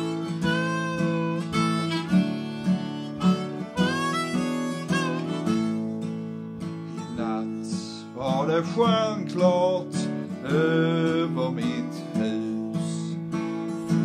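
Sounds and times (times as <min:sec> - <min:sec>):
harmonica melody: 0:00.0 - 0:09.2
acoustic guitar strumming: 0:00.0 - 0:14.0.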